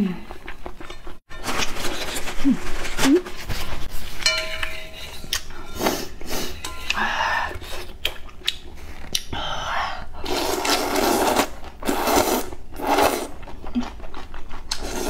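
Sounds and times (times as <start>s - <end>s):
noodles slurped: 10.2s - 15.0s.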